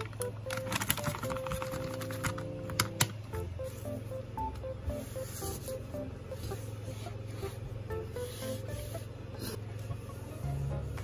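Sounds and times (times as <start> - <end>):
plastic wipes pack clicking: 0.0 - 3.2
soft background music: 0.0 - 11.0.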